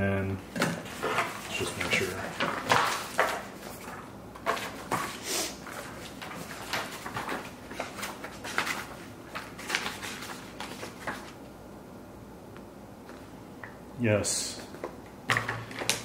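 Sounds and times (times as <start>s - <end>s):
packaging rustling and crinkling: 0.8s - 11.4s.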